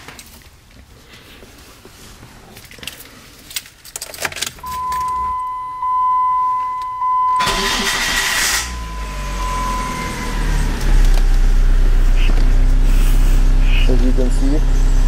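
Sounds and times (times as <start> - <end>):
keys jingling in ignition: 2.6 - 5.5
car engine cranking and idling: 2.6 - 15.0
high warning tone: 4.6 - 12.8.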